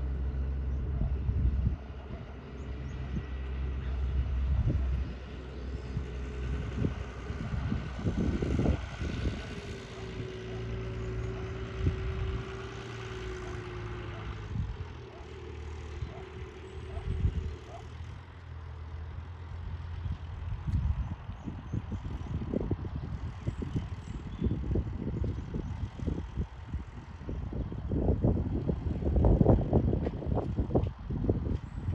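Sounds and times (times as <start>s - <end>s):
tractor diesel engine: 0.0s - 31.9s
wind on microphone: 4.1s - 12.6s, 20.4s - 31.9s.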